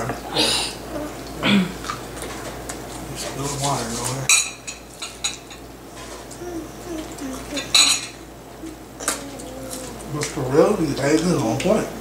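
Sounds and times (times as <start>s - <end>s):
forks clinking on plates: 7.5s - 8.2s.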